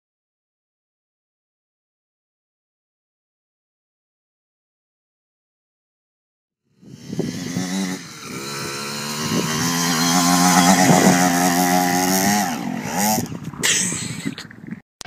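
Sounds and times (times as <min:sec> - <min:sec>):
dirt bike engine running: 0:06.8 - 0:13.6.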